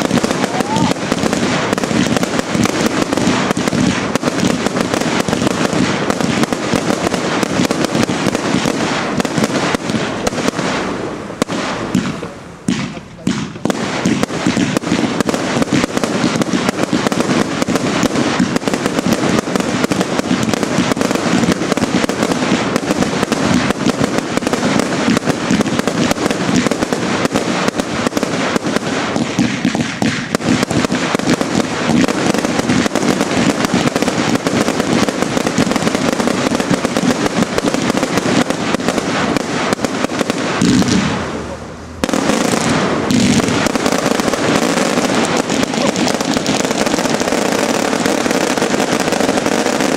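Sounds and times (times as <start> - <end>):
fireworks bangs and bursts: 0.0 - 49.9.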